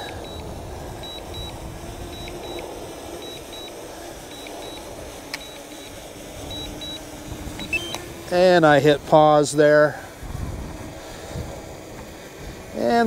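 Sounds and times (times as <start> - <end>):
wind rumbling on microphone: 0.0 - 4.1, 6.3 - 13.0
high double warning beeps: 0.0 - 8.0
faint steady hum: 0.0 - 13.0.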